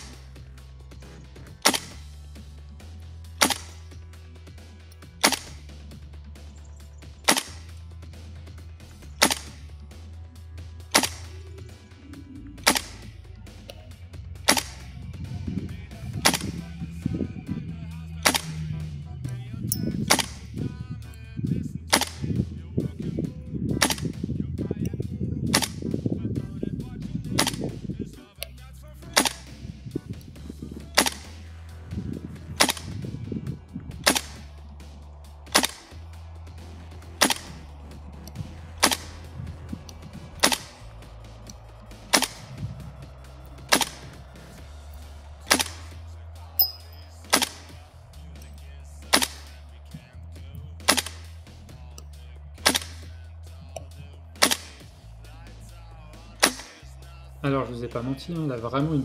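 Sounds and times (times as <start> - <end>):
airsoft rifle shots: 0.0 - 0.4, 1.0 - 2.2, 3.3 - 6.0, 7.2 - 7.8, 9.0 - 9.9, 10.8 - 11.8, 12.6 - 20.8, 21.9 - 23.0, 23.7 - 24.3, 25.5 - 26.0, 27.2 - 27.9, 29.0 - 30.2, 30.8 - 33.2, 33.8 - 50.0, 50.8 - 51.6, 52.5 - 55.0, 56.1 - 56.9
background music: 0.0 - 59.0.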